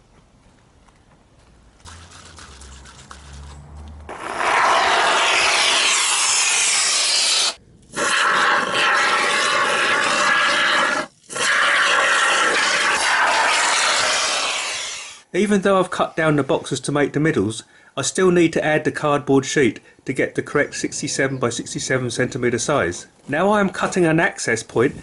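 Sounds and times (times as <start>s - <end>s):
expanding foam spray hissing: 4.1s - 15.2s.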